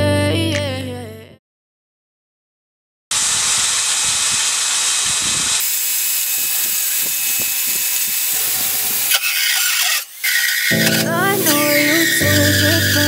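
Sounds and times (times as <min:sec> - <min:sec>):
drill sanding disc grinding board: 0:03.1 - 0:13.0.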